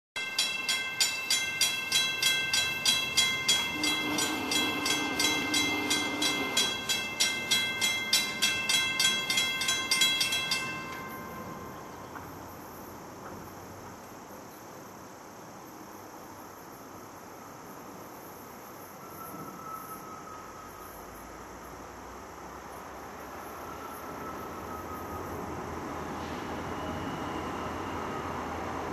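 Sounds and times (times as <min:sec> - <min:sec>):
crossing bell ringing rapidly: 0:00.2 - 0:12.1
locomotive air horn: 0:03.4 - 0:06.9.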